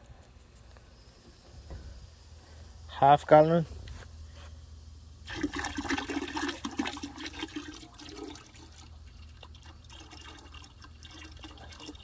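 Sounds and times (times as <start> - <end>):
liquid glugging into bucket: 5.2 - 12.0.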